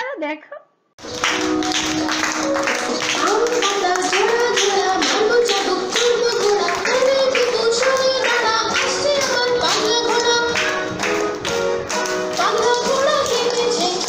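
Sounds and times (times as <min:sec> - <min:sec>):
children's rhyme sung to music: 0:02.8 - 0:14.0.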